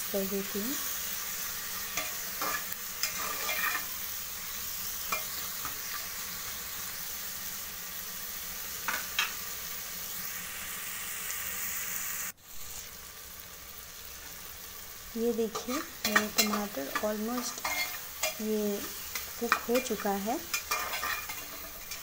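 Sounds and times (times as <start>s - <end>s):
onion and tomato sizzling in oil: 0.0s - 22.0s
steel spoon scraping pan: 1.9s - 3.9s, 15.5s - 22.0s.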